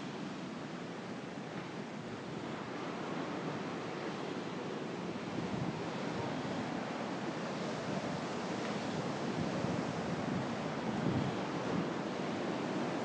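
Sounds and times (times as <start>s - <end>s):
surf breaking on shore: 2.3s - 13.0s
wind buffeting microphone: 5.2s - 13.0s.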